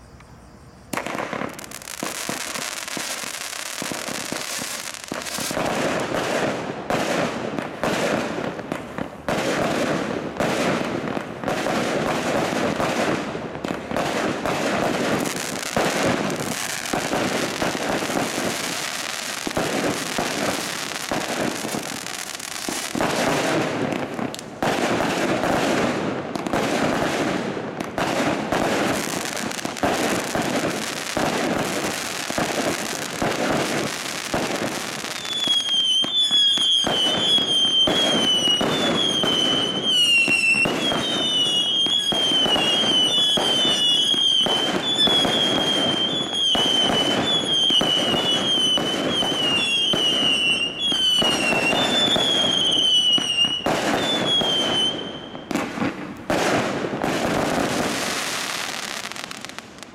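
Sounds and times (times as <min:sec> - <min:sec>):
screaming firework whistles: 0:00.0 - 0:05.7, 0:14.9 - 0:23.4, 0:28.9 - 0:55.6
firework shots and crackle: 0:00.9 - 0:59.9.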